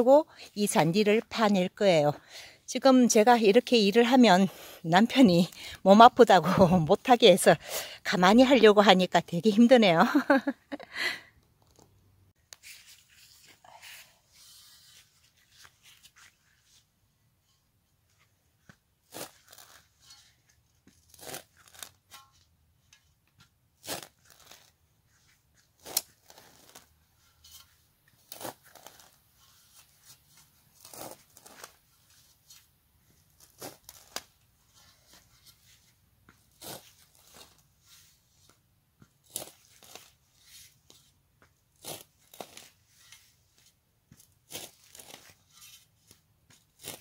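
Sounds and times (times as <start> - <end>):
spade cutting into turf: 19.0 - 20.3, 21.0 - 22.4, 23.8 - 24.7, 25.8 - 29.1, 30.8 - 31.7, 36.4 - 37.6, 39.2 - 41.0, 41.8 - 43.2, 44.2 - 47.0.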